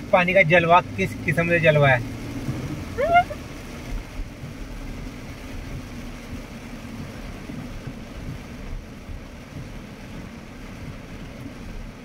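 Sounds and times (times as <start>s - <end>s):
car cabin noise on wet road: 0.0s - 12.0s
person exclaiming: 3.0s - 3.4s.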